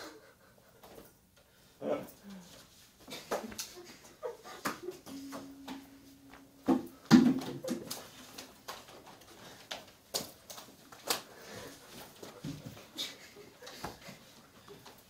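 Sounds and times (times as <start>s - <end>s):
low steady hum: 5.1s - 8.6s.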